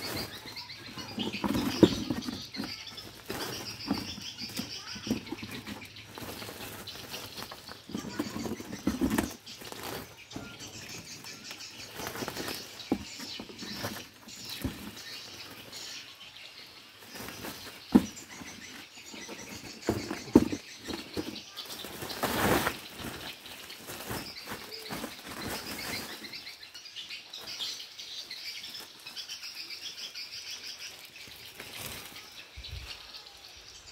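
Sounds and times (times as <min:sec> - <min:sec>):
small knocks and thumps: 0:00.0 - 0:15.4, 0:17.1 - 0:23.3
plastic sack and cardboard rustling: 0:00.0 - 0:16.0, 0:16.8 - 0:33.0.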